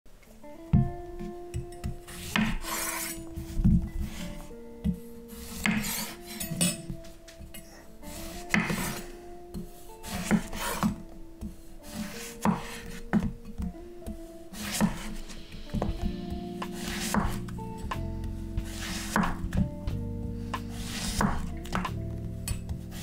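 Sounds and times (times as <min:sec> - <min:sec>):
soft background music: 0:00.2 - 0:23.0
knife slicing zucchini: 0:01.9 - 0:03.2, 0:05.4 - 0:06.8, 0:08.1 - 0:09.2, 0:10.0 - 0:11.0, 0:11.8 - 0:13.4, 0:14.5 - 0:15.3, 0:16.8 - 0:17.5, 0:18.6 - 0:19.6, 0:20.7 - 0:21.9.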